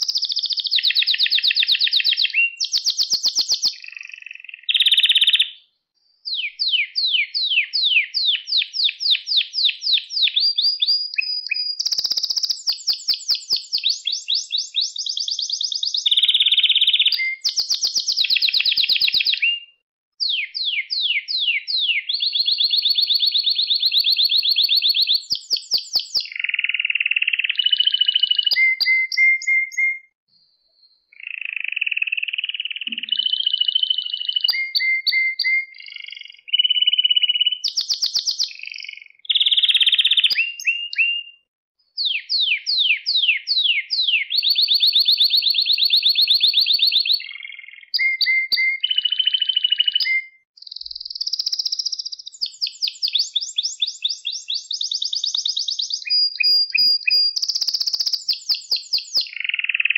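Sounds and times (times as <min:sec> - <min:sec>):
canary singing: 0:00.0 - 0:05.6, 0:06.2 - 0:30.0, 0:31.1 - 0:41.4, 0:42.0 - 0:59.9.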